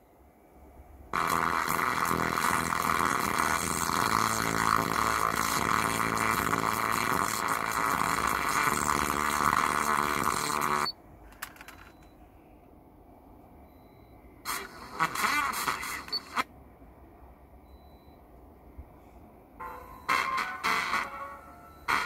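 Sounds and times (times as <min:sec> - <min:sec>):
distorted car stereo playback: 0:01.1 - 0:11.0, 0:14.5 - 0:16.5, 0:19.6 - 0:22.0.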